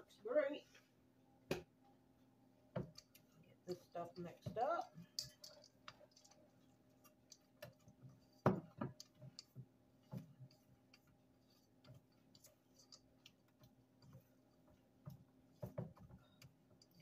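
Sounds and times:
utensil scraping through batter: 5.2s - 17.0s.

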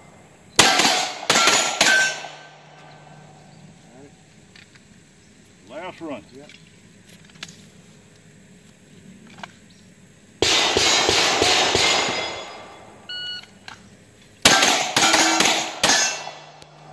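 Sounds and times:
pistol shots: 0.6s - 2.6s, 10.4s - 12.7s, 14.4s - 16.6s
steel targets clanging: 0.6s - 3.1s, 10.5s - 12.9s, 14.5s - 16.6s.

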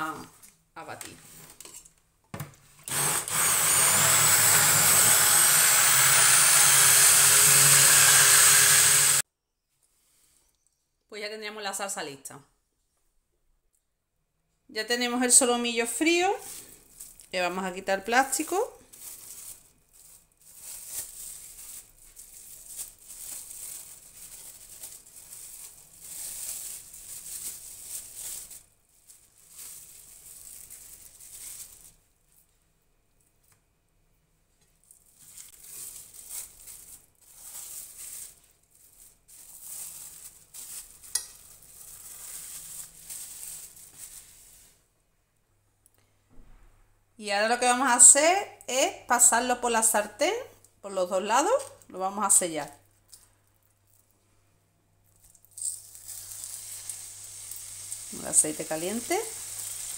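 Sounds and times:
immersion blender whirring: 2.9s - 9.2s
plastic cling film crinkling: 15.8s - 32.6s, 34.6s - 44.8s, 52.8s - 54.2s, 55.0s - 59.9s.

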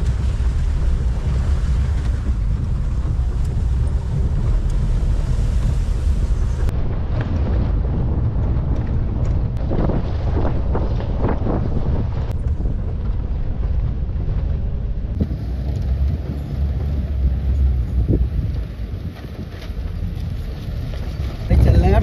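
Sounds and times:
vehicle engine and road rumble: 0.0s - 22.0s
wind buffeting microphone: 0.0s - 22.0s.

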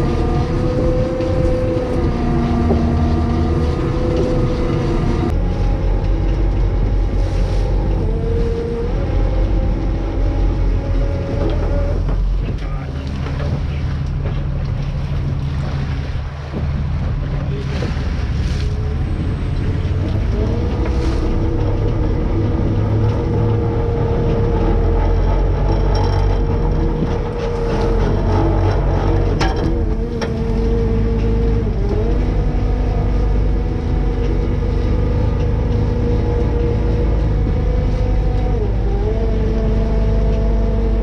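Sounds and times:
machinery whine: 0.0s - 14.5s
boat engine and machinery: 0.0s - 41.0s.

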